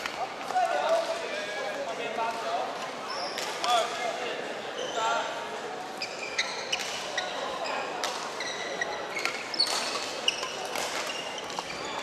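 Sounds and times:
play on neighbouring courts: 0:00.0 - 0:12.0
sneakers squeaking on wooden court: 0:06.0 - 0:12.0.

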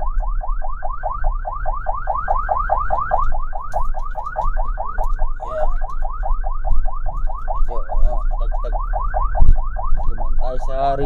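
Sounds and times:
ambulance siren yelping: 0:00.0 - 0:11.0.

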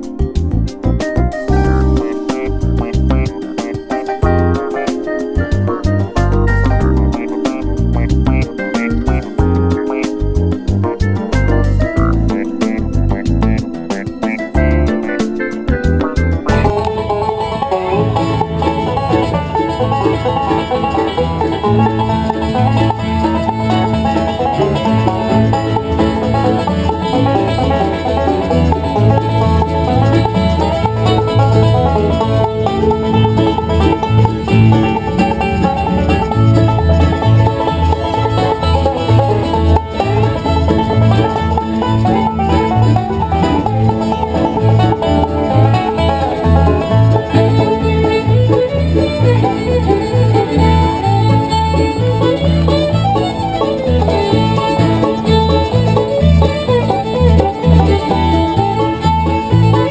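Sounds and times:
acoustic guitars: 0:00.0 - 0:59.9
banjo picking: 0:00.0 - 0:59.9
fiddle: 0:00.0 - 0:59.9.

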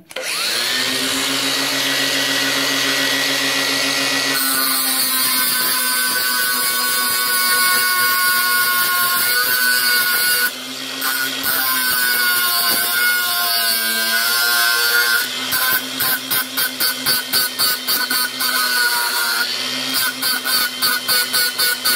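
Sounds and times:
angle grinder grinding metal: 0:00.0 - 0:21.9.

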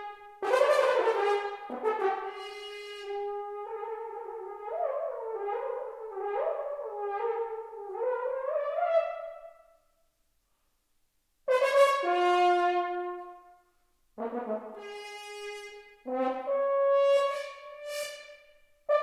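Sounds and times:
solo french horn: 0:00.0 - 0:09.5, 0:11.5 - 0:19.0.

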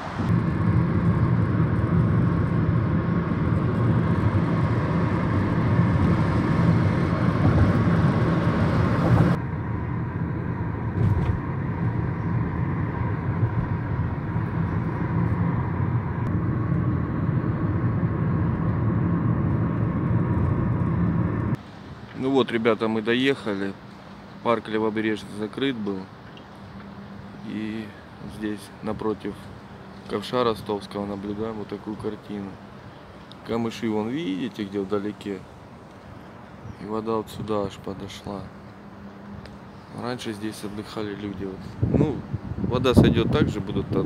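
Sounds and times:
car engine and road noise: 0:00.0 - 0:44.0
wind on microphone: 0:41.6 - 0:44.0.

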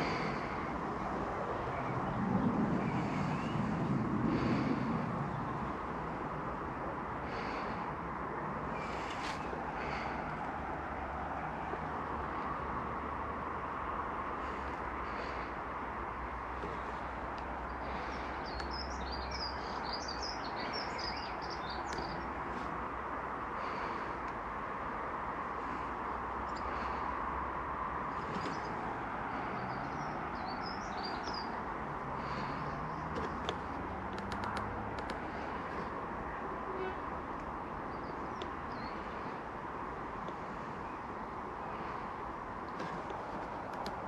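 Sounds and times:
outdoor background hiss: 0:00.0 - 0:44.0
songbird chirping: 0:16.6 - 0:22.7, 0:28.1 - 0:31.6
faint clicks: 0:21.9 - 0:22.2, 0:33.1 - 0:35.9, 0:38.4 - 0:38.7, 0:42.7 - 0:44.0.

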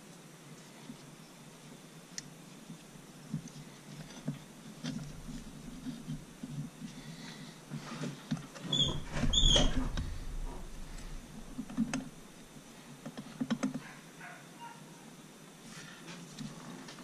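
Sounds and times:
short high squeaks: 0:08.6 - 0:12.2
metal parts clicking and knocking: 0:08.9 - 0:12.4
heavy thump: 0:08.9 - 0:12.5.

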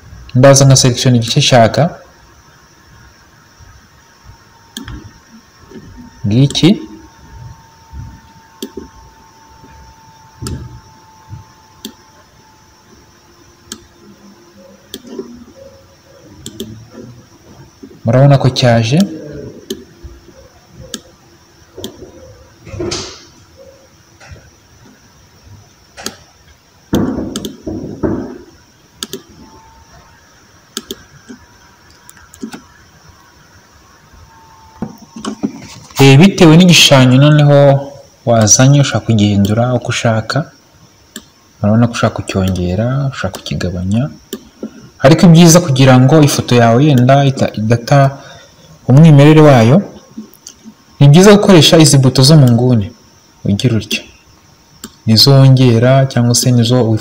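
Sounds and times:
faint steady hum: 0:00.0 - 0:57.0
faint steady tone: 0:00.0 - 0:57.0
computer mouse clicks: 0:04.7 - 0:05.1, 0:08.6 - 0:08.9, 0:11.8 - 0:12.0, 0:13.7 - 0:13.9, 0:14.9 - 0:15.3, 0:16.4 - 0:16.8, 0:19.6 - 0:19.9, 0:20.8 - 0:21.1, 0:25.9 - 0:26.3, 0:27.3 - 0:27.6, 0:29.0 - 0:29.3, 0:30.7 - 0:32.7, 0:34.8 - 0:35.6, 0:41.1 - 0:41.3, 0:54.8 - 0:55.0.

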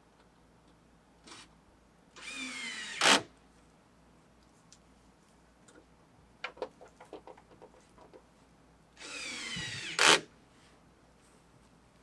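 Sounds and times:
cordless drill motor whine: 0:02.2 - 0:03.2, 0:09.0 - 0:10.2.

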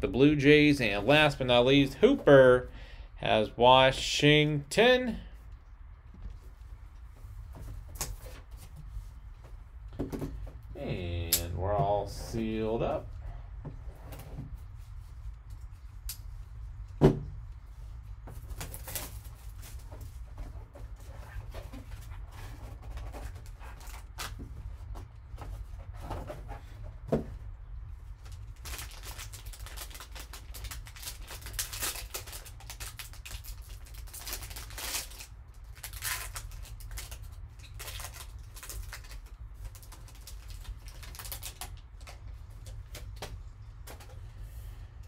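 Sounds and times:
plastic wrapper crinkling and tearing: 0:18.4 - 0:19.8, 0:28.2 - 0:43.3.

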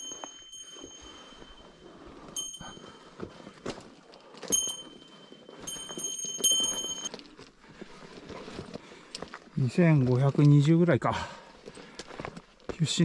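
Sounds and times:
high ringing tone: 0:00.0 - 0:03.6, 0:04.4 - 0:07.2.

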